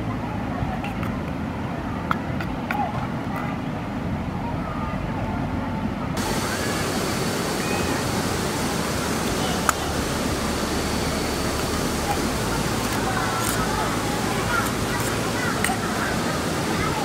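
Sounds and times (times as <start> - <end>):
waterfall roaring: 6.2 - 17.0.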